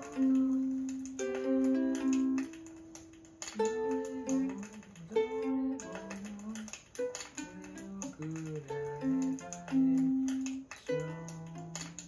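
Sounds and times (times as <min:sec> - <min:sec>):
ukulele chords ringing: 0:00.0 - 0:12.0.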